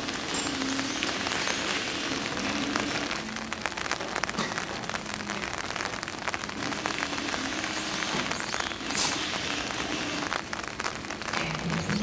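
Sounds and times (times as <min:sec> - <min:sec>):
rain pattering on ground: 0:00.0 - 0:12.0
raindrop ticks close by: 0:00.0 - 0:12.0.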